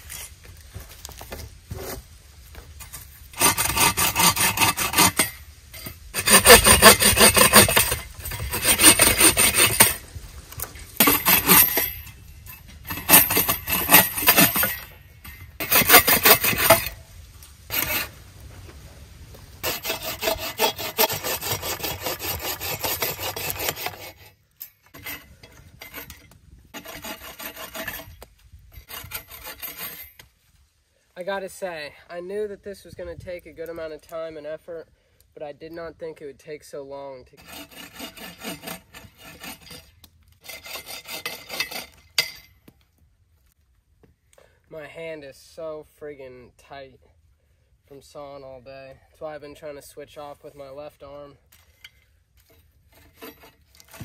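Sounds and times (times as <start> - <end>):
hand saw cutting wood: 3.3 - 10.0, 10.6 - 17.0, 17.7 - 18.2, 19.6 - 30.3, 37.4 - 42.5, 51.8 - 54.0.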